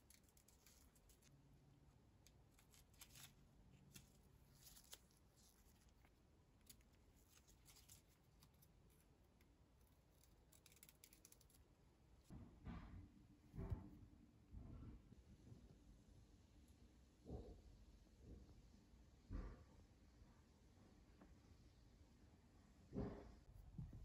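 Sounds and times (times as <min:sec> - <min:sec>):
faint rustling and clicks of leaves: 0:00.0 - 0:01.3, 0:02.2 - 0:11.7.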